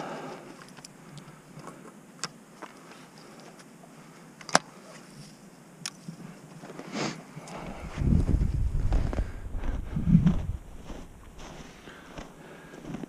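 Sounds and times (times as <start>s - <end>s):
faint outdoor noise: 0.0s - 13.0s.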